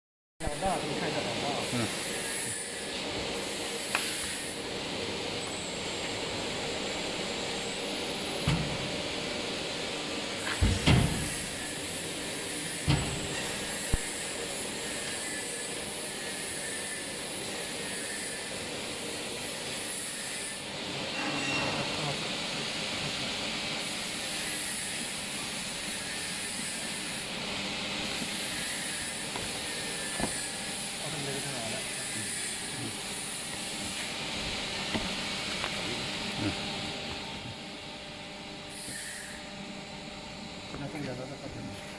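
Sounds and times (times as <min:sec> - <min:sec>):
press clunks and thumps: 0:10.5 - 0:11.4.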